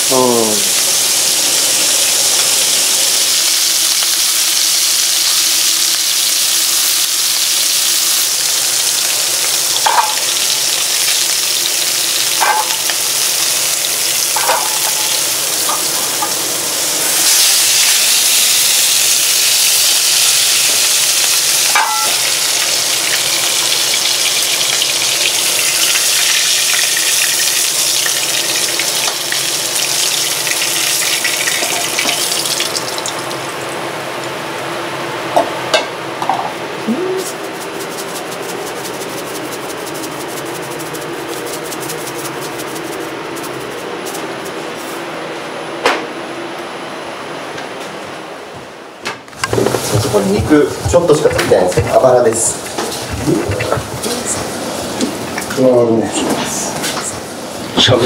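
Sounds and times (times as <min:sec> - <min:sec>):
ribs sizzling in a pan: 0:00.0 - 0:33.4.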